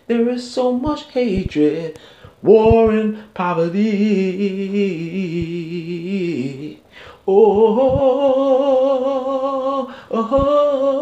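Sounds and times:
man singing held notes: 0.0 - 11.0
quick breaths: 2.0 - 2.4, 6.8 - 7.3, 9.9 - 10.1.

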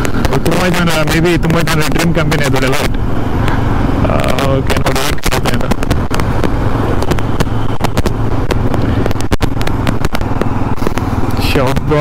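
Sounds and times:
vehicle moving with low hum: 0.0 - 12.0
wind buffeting microphone: 4.8 - 11.3.

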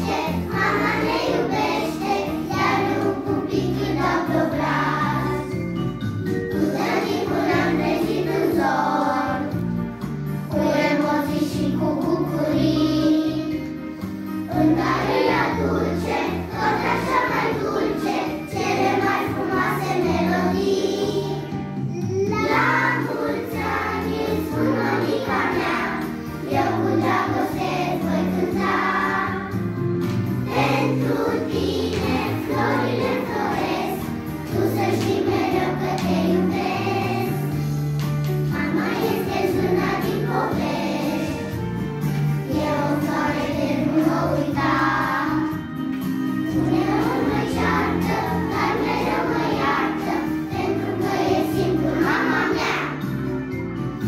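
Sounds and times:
group singing a song: 14.5 - 21.4, 22.5 - 29.6, 30.5 - 37.6, 38.5 - 41.5, 46.7 - 52.9.

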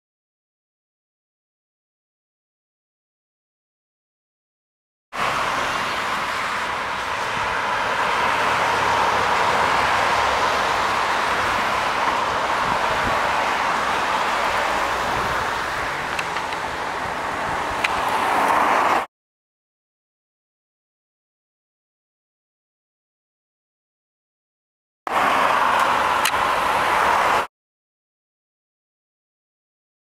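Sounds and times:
cars passing: 5.2 - 19.1, 25.1 - 27.5.

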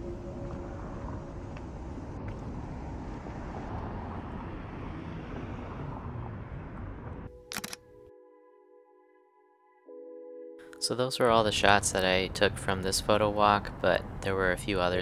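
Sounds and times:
traffic rumble: 0.0 - 7.3, 11.4 - 15.0
sharp clicks: 7.5 - 7.8.

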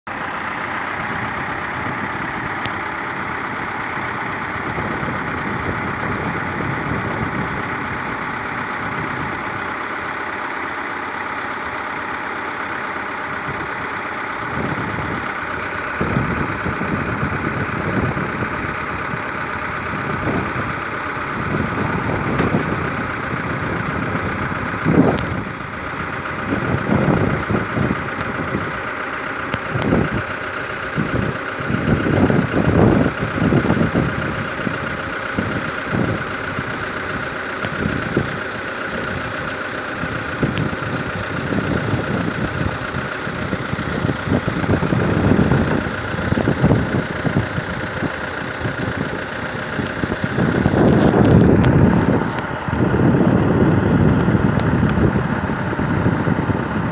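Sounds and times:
vehicle engine running: 0.0 - 56.9.

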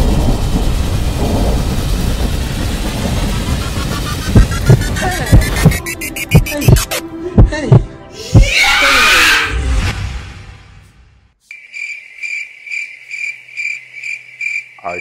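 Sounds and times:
loud noisy crash: 0.0 - 5.8
cricket chirping sound effect: 1.0 - 7.0, 11.4 - 15.0
background music: 4.3 - 11.2.

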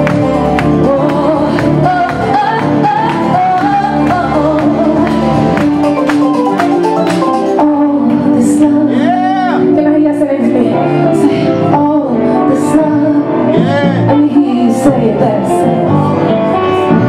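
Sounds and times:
woman singing: 0.0 - 6.0, 7.5 - 17.0
steady drumbeat: 0.0 - 8.3
electric guitar chords: 0.0 - 17.0
keyboard chords: 0.0 - 17.0.

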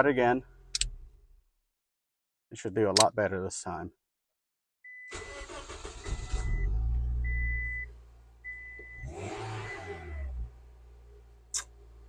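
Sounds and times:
car engine starting and revving: 5.1 - 12.0
dashboard warning chime beeping: 6.2 - 10.1.

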